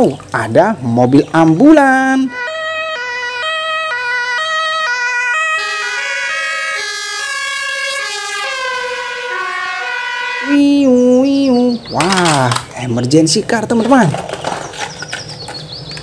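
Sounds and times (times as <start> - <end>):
toy ambulance siren: 2.2 - 10.6
louder lower sound: 2.3 - 6.8.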